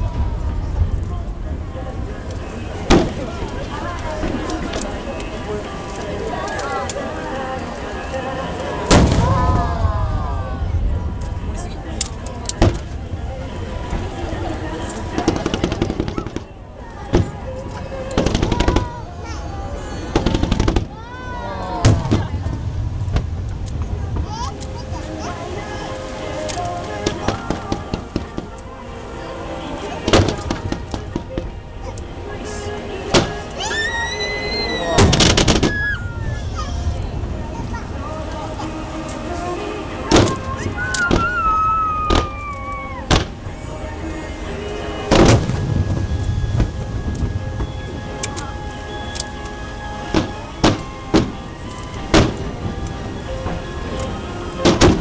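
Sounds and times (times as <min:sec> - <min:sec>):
heavy firework boom: 0:00.0 - 0:04.8, 0:08.9 - 0:11.9, 0:18.2 - 0:21.0, 0:21.8 - 0:25.1, 0:35.0 - 0:37.8, 0:45.1 - 0:47.9, 0:54.6 - 0:55.0
low rumble: 0:00.0 - 0:05.9, 0:08.9 - 0:25.8, 0:34.5 - 0:39.0, 0:45.1 - 0:48.8
fireworks sharp bangs: 0:02.4 - 0:05.2, 0:08.9 - 0:13.3, 0:13.9 - 0:21.0, 0:21.8 - 0:25.7, 0:26.9 - 0:28.6, 0:30.0 - 0:31.6, 0:33.1 - 0:33.6, 0:35.0 - 0:37.0, 0:40.1 - 0:43.4, 0:45.0 - 0:48.0, 0:50.1 - 0:55.0.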